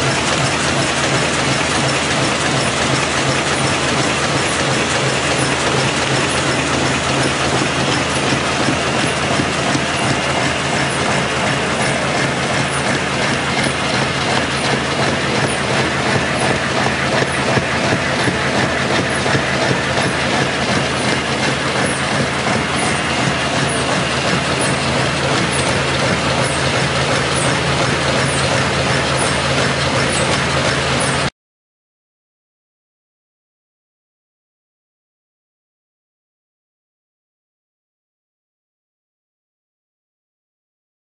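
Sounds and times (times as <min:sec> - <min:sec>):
machine mechanical clatter: 0:00.0 - 0:31.3
regular mechanical ticking: 0:00.0 - 0:31.3.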